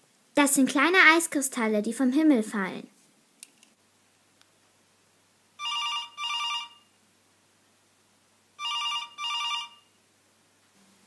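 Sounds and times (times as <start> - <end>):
telephone double ring: 5.6 - 6.9, 8.6 - 9.9.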